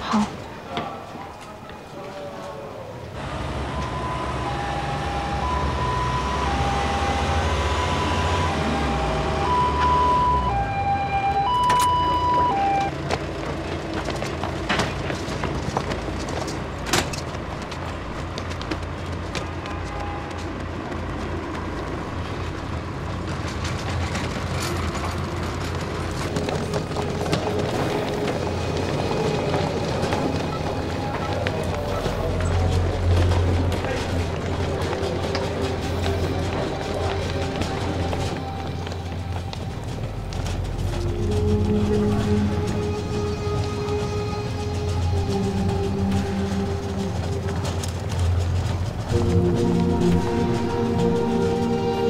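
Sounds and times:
low engine rumble: 2.5 - 52.0
two-tone ambulance siren: 3.2 - 13.0, 26.2 - 52.0.

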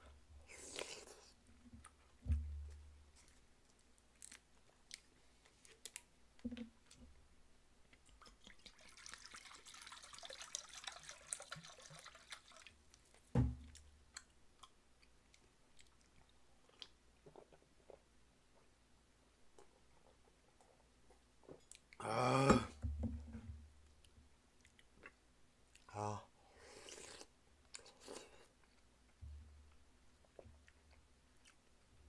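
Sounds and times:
liquid pouring into metal bowl: 8.5 - 12.7.

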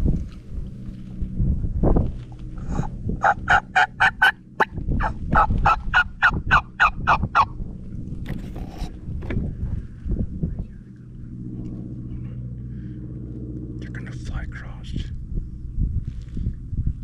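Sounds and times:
turkey mouth call notes: 2.6 - 7.5.

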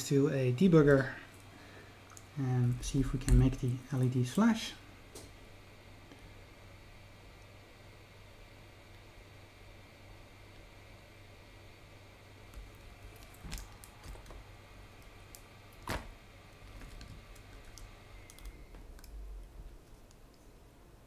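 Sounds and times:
steady low hum: 0.0 - 21.0
small tools and wire clicking: 16.6 - 20.5.

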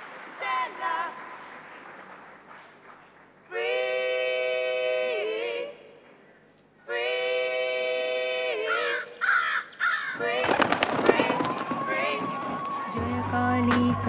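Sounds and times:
person singing: 10.2 - 14.0.

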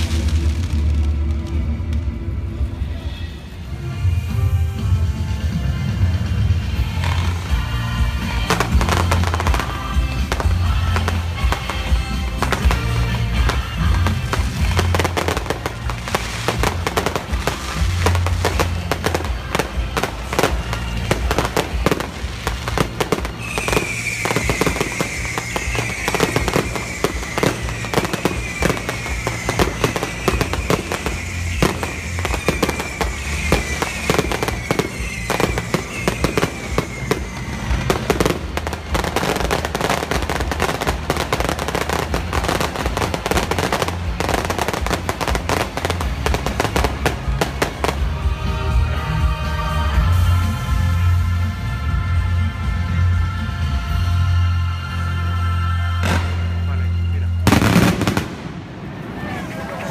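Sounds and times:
fireworks bursting and crackling: 0.0 - 54.6, 56.0 - 59.9
show music: 0.0 - 59.9
short falling whistles: 23.3 - 37.8.

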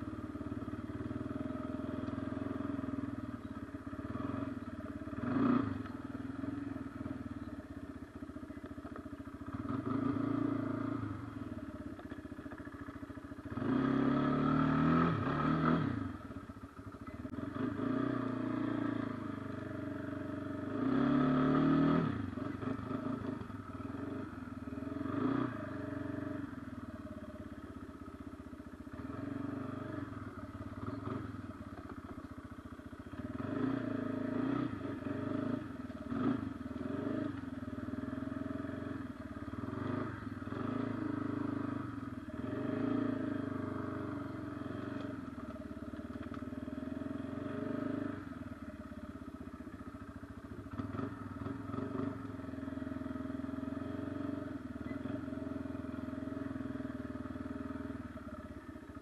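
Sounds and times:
atv engine revving: 0.0 - 59.0.

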